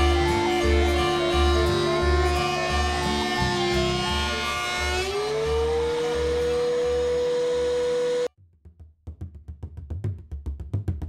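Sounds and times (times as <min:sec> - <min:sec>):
held note over pulsing beat: 0:00.0 - 0:08.3.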